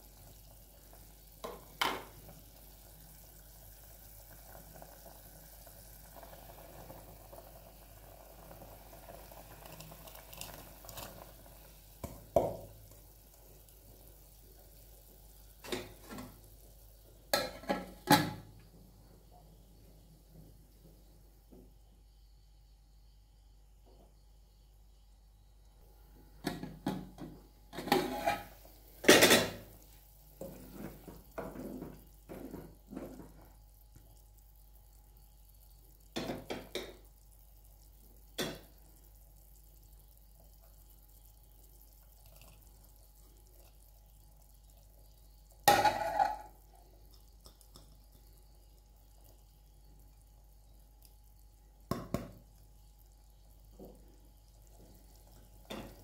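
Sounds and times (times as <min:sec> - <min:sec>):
metal lid clattering against pot: 0:45.7 - 0:46.4
bowl and utensils knocking on pot: 0:45.7 - 0:46.5.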